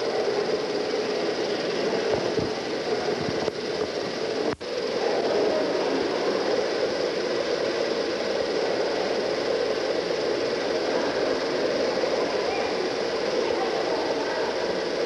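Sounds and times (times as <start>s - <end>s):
steam engine running with hiss: 0.0s - 15.0s.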